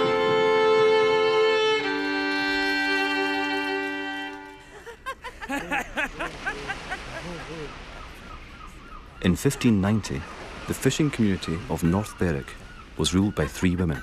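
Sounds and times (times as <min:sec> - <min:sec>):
fiddle playing long notes: 0:00.0 - 0:04.9
arching bird calls: 0:06.7 - 0:14.0.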